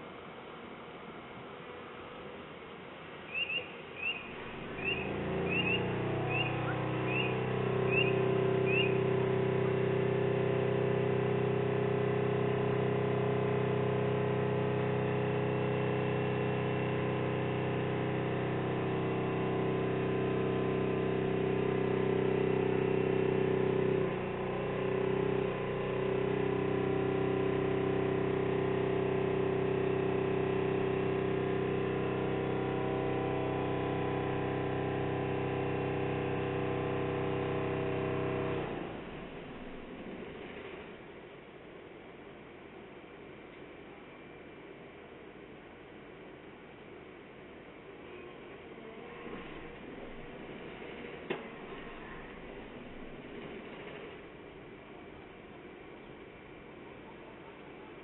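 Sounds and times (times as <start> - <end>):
diesel excavator engine humming: 3.4 - 40.9, 49.0 - 55.0.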